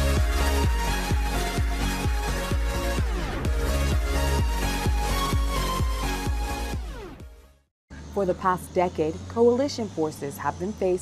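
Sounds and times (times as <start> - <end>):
electronic dance music: 0.0 - 7.4.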